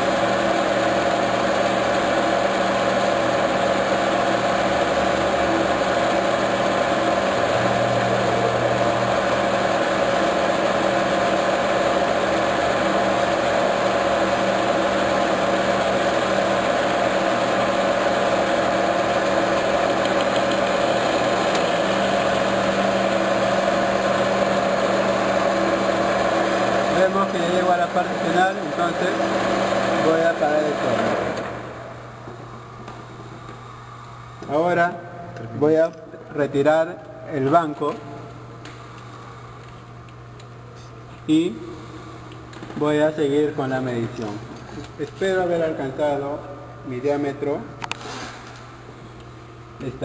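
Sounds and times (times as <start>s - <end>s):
metal lathe running: 0.0s - 32.1s.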